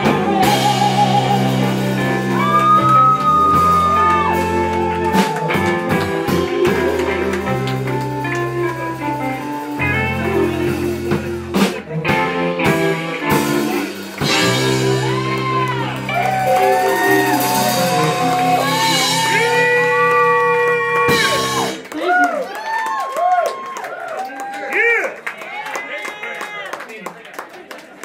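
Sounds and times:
woman singing: 0:00.0 - 0:03.8
drum fill: 0:00.0 - 0:20.1
live soul band playing: 0:00.0 - 0:22.2.

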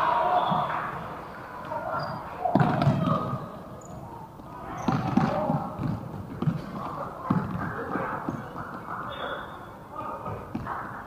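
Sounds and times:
raised voices of people: 0:00.0 - 0:05.5.

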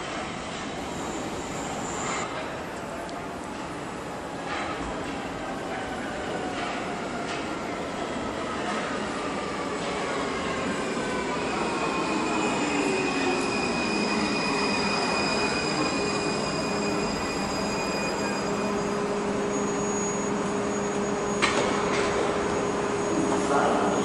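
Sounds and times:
steady high tones: 0:00.6 - 0:02.2.

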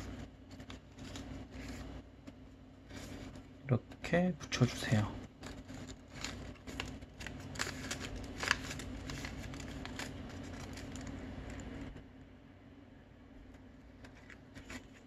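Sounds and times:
paper rustling and crackling: 0:00.0 - 0:03.5, 0:04.8 - 0:11.9, 0:14.0 - 0:15.0.

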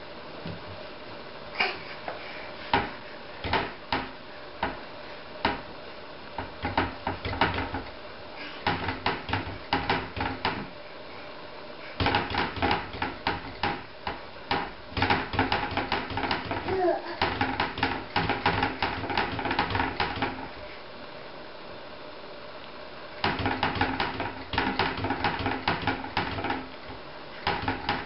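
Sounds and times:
wooden cabinet doors knocking: 0:02.7 - 0:04.8, 0:06.4 - 0:07.9, 0:08.6 - 0:10.7, 0:12.0 - 0:20.5, 0:23.2 - 0:26.7, 0:27.4 - 0:28.0.

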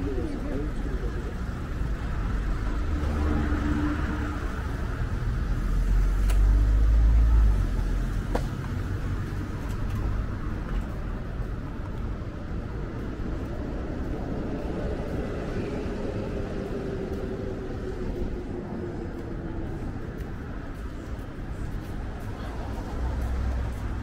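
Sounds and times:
vehicle passing: 0:00.0 - 0:11.6
street traffic hum: 0:00.0 - 0:24.0.

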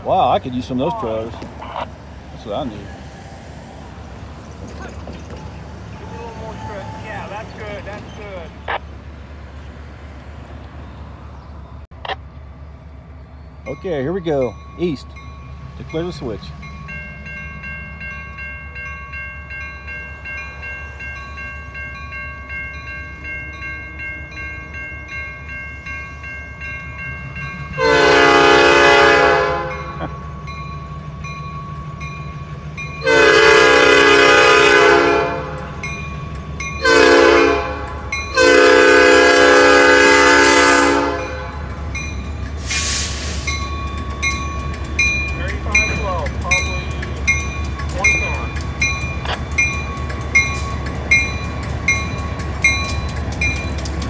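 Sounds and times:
locomotive engine rumble: 0:00.0 - 0:54.0
crossing bell ringing: 0:04.4 - 0:08.8, 0:13.6 - 0:54.0
locomotive air horn: 0:27.8 - 0:30.0, 0:33.0 - 0:35.8, 0:36.8 - 0:41.8.

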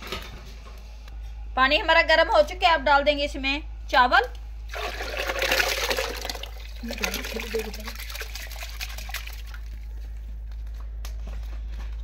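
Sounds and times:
rice pouring into water: 0:04.7 - 0:09.8.

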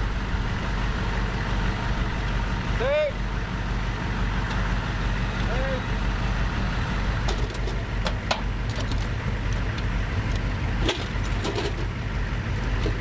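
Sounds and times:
diesel engine idling: 0:00.0 - 0:13.0
clicks and knocks of gear: 0:07.3 - 0:11.9.

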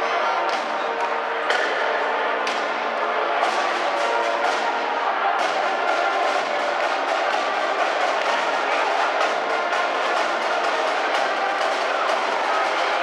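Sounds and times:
brass and woodwinds playing: 0:00.0 - 0:13.0
bass and snare drums beating: 0:03.4 - 0:13.0.

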